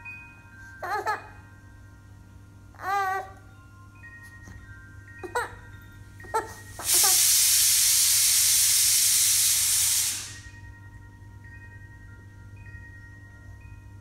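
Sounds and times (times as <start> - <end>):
pressure cooker steam hiss: 6.6 - 10.6.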